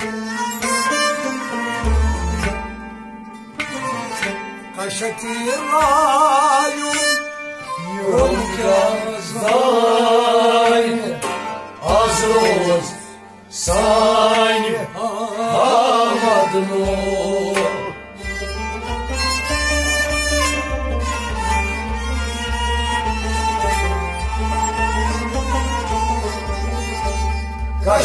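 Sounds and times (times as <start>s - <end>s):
bowed string instrument: 0.0s - 28.0s
harmonium: 0.0s - 28.0s
man singing with vibrato: 4.8s - 18.1s, 27.8s - 28.0s.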